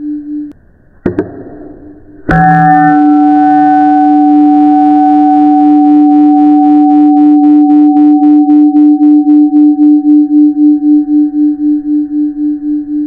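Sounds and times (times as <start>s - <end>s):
pulsing two-pitch alarm tone: 2.3s - 11.1s.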